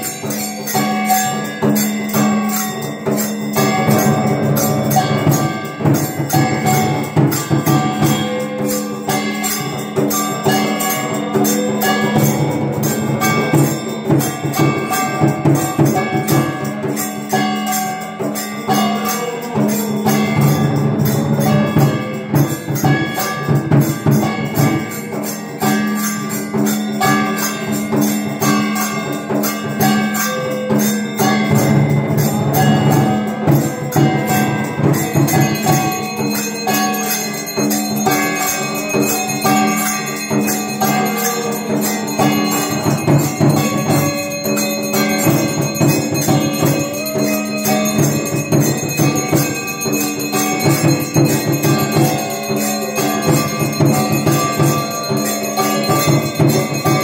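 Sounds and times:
cymbals: 0.0s - 57.0s
percussion beating: 0.0s - 57.0s
temple bells: 0.0s - 57.0s
sustained tones: 16.4s - 57.0s.

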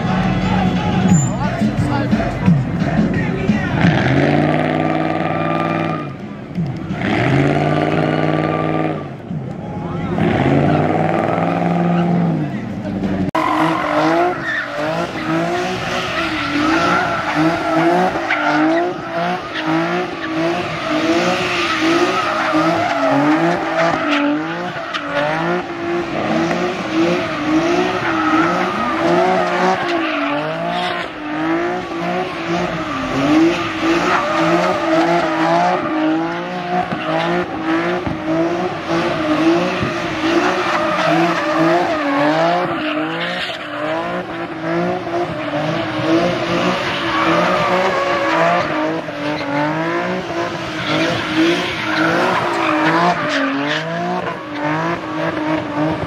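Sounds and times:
car engine revving: 0.0s - 56.0s
tyres squealing: 13.4s - 38.2s, 38.9s - 56.0s.

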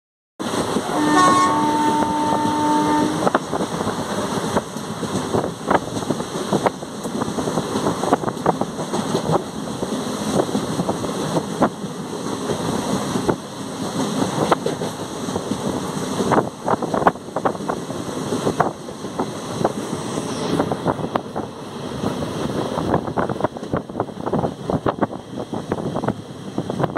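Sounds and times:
train rumbling at speed: 0.4s - 26.9s
train horn: 0.8s - 3.5s
wheels clacking over rail joints: 3.2s - 19.8s.

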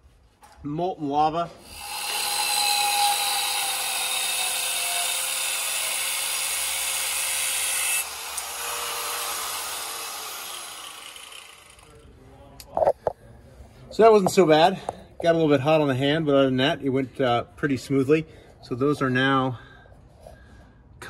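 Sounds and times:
angle grinder cutting steel: 1.6s - 12.0s
grinder disc spinning down: 8.0s - 11.9s.

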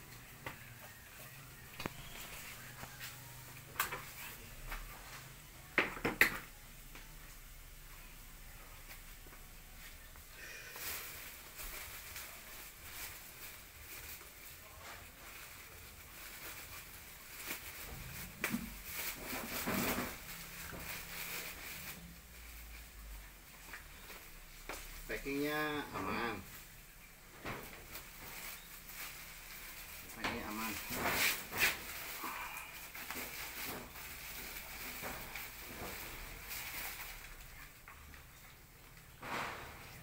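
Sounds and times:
plastic bag crinkling: 1.7s - 4.3s, 10.4s - 26.7s, 27.4s - 38.5s.

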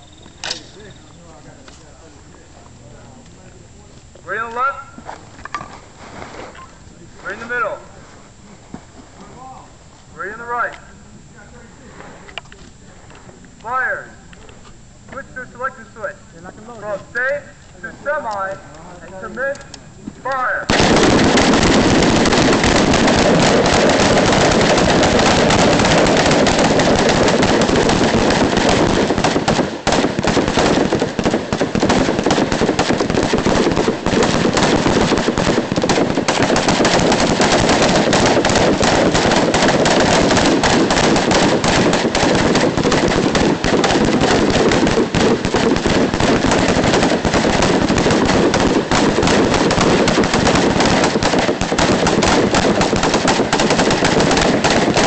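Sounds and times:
rifles firing: 0.1s - 1.0s, 20.7s - 55.0s.

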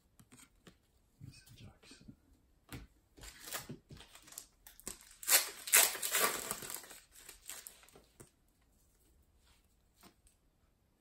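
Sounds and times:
foil wrapper rustling: 3.4s - 8.0s
foil wrapper crinkling tear: 4.2s - 7.9s.

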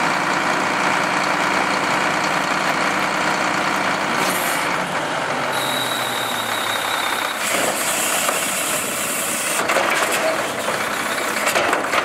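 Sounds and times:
truck engine running: 0.0s - 12.0s
air hissing: 5.6s - 9.6s.

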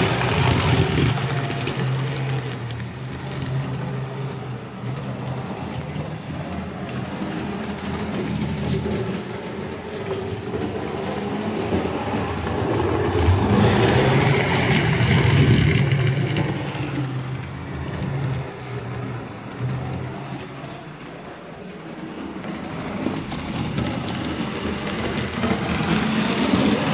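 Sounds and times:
model train motor humming: 0.0s - 10.7s
wheels on rails: 0.0s - 26.9s.

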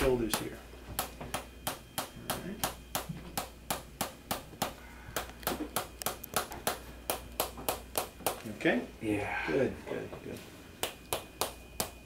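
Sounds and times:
hammer tapping on metal stylus: 10.8s - 12.0s.

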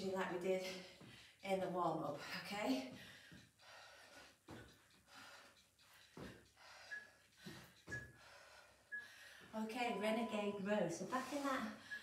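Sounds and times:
person breathing: 2.9s - 9.6s.

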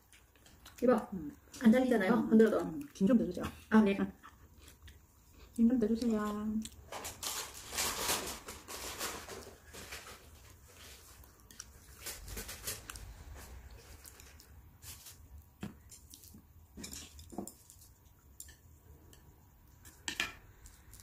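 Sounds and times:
soft rustling: 4.6s - 18.5s.

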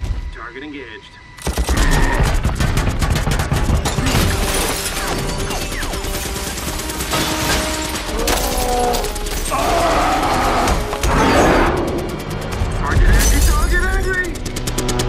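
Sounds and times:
shattering and crashing debris: 1.5s - 10.0s.

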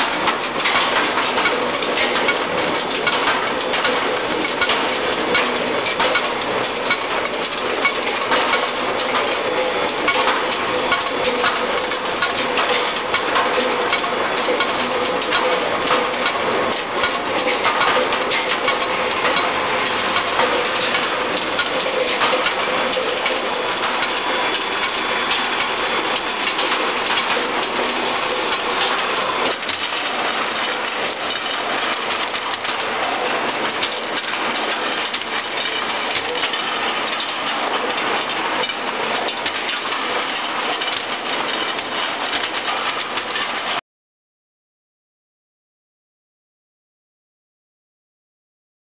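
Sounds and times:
steel mill metallic clattering: 0.0s - 43.8s.

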